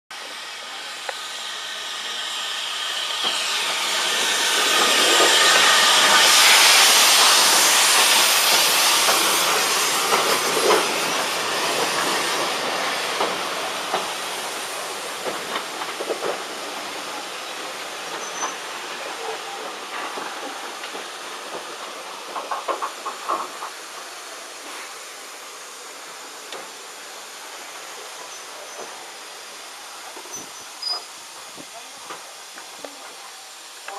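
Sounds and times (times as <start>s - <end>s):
steam locomotive hissing: 0.1s - 33.9s
train wheels clanking over rail joints: 3.2s - 24.8s.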